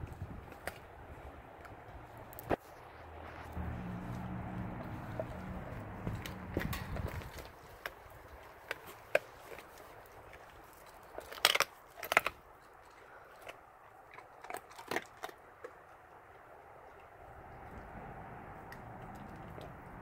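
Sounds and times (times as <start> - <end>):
dog crunching bones: 0.0 - 20.0.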